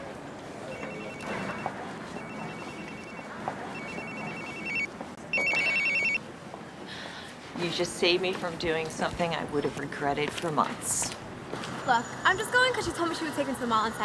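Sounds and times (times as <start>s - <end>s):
phone ringtone trilling: 0.7s - 6.2s.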